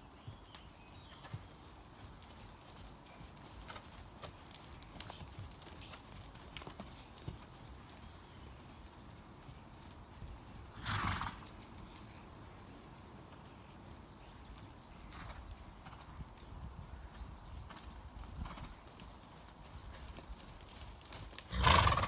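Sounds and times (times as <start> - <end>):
horse hoofbeats on sand: 0.2 - 11.6, 17.2 - 22.0.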